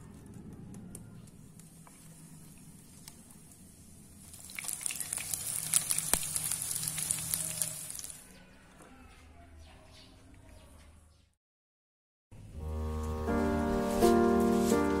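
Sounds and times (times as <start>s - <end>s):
batter sizzling in oil: 4.1s - 8.2s.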